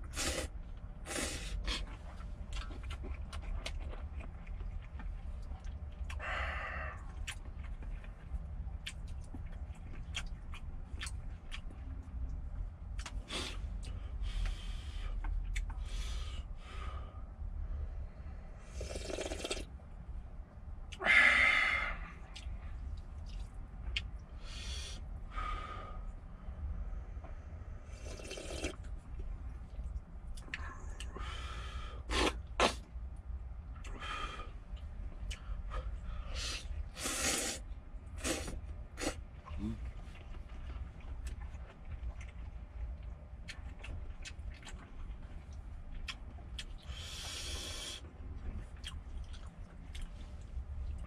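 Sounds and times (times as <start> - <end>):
steady low hum: 0.0 - 51.0
slurping noodles: 18.7 - 19.7, 28.0 - 28.9, 37.0 - 37.6.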